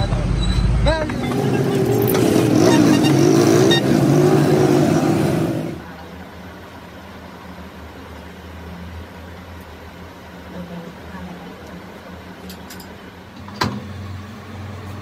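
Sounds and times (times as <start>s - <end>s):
vehicle engine running: 0.0s - 6.2s
low hum of workshop machinery: 4.0s - 15.0s.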